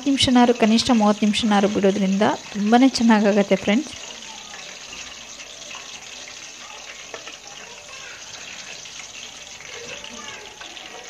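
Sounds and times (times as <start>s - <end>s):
meat deep-frying in oil: 0.0s - 11.0s.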